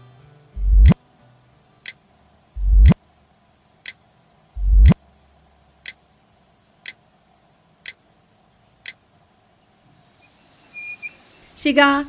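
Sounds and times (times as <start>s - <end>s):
alarm clock ticking: 0.6s - 1.0s, 2.6s - 3.0s, 4.6s - 5.0s
deep rising swell: 0.6s - 1.0s, 2.6s - 3.0s, 4.6s - 5.0s.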